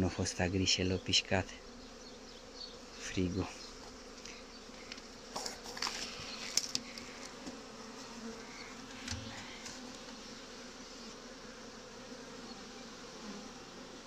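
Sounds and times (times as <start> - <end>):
honeybees buzzing: 0.0 - 14.0.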